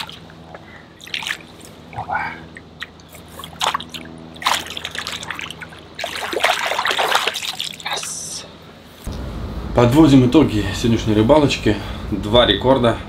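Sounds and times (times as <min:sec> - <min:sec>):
fish thrashing and splashing water: 0:00.0 - 0:00.4, 0:01.0 - 0:08.1.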